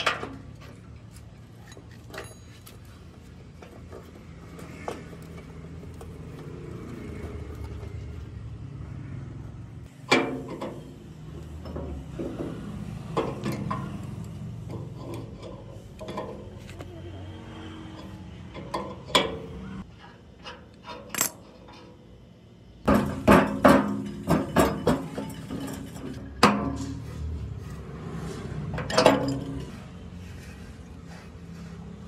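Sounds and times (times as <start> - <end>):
metal tools clinking: 1.3 - 4.0, 23.0 - 27.0, 28.8 - 29.7.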